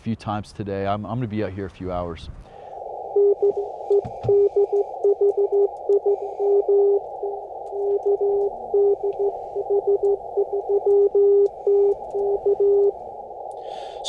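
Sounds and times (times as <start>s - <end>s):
radio receiver hiss: 2.3s - 14.0s
morse code tone: 3.1s - 13.1s.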